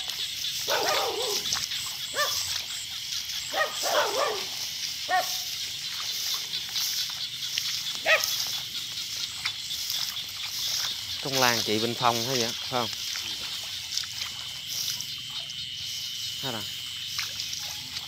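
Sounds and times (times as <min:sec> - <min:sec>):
night insects chorus: 0:00.0 - 0:18.0.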